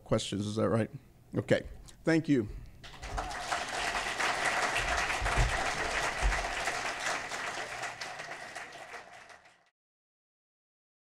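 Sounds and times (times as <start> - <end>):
audience applauding: 2.8 - 9.7.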